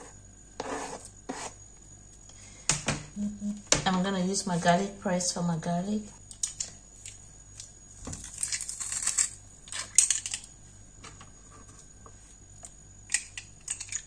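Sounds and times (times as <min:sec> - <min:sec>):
garlic crushing crackle: 0:06.3 - 0:10.5.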